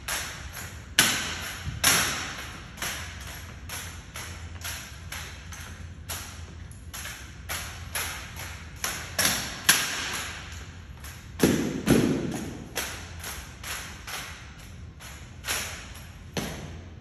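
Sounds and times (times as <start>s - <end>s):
heavy thuds on concrete floor: 11.4s - 12.8s, 16.4s - 16.9s.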